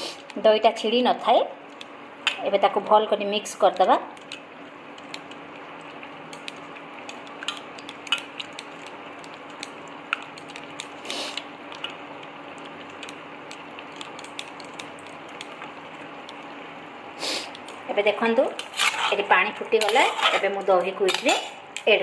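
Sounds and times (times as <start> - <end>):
steady background hum: 0.0 - 22.0
hand mixing in a steel bowl: 17.9 - 21.5.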